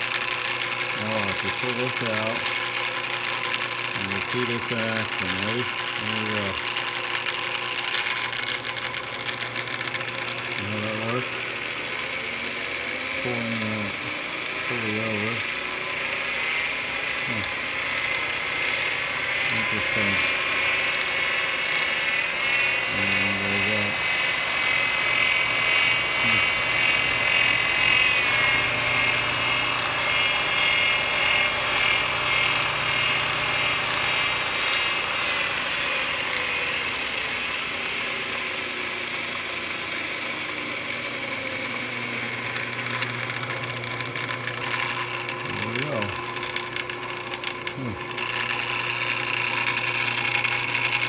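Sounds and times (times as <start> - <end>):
belt and pulley whine: 0.0 - 51.0
lathe motor humming: 0.0 - 51.0.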